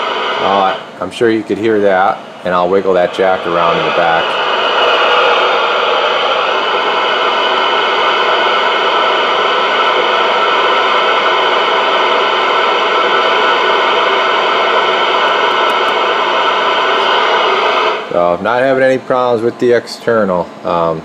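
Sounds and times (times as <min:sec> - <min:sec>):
radio static hiss: 0:00.0 - 0:05.5, 0:14.7 - 0:17.2.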